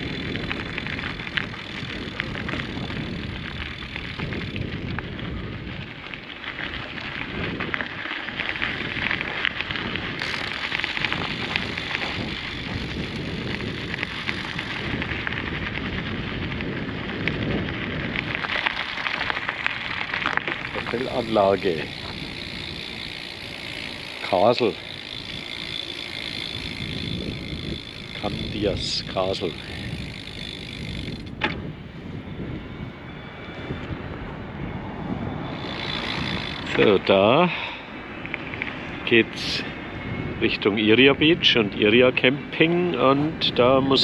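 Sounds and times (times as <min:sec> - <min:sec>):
tyres crunching over gravel: 0:00.0 - 0:31.4, 0:35.4 - 0:39.6
vehicle engine running: 0:08.5 - 0:31.2.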